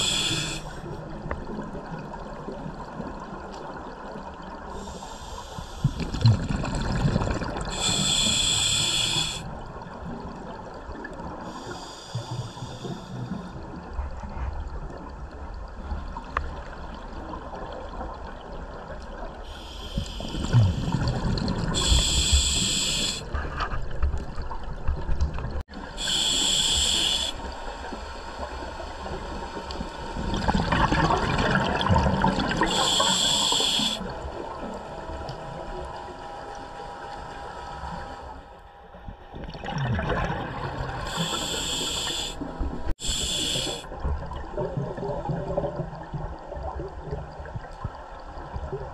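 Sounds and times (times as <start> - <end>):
regulator inhale hiss: 0.0 - 0.9, 4.8 - 6.2, 7.7 - 9.5, 11.4 - 13.6, 19.4 - 21.0, 21.8 - 23.3, 26.0 - 29.8, 32.6 - 34.2, 41.0 - 44.0
bubbling exhale: 19.5 - 23.3, 30.3 - 34.2, 39.6 - 44.0.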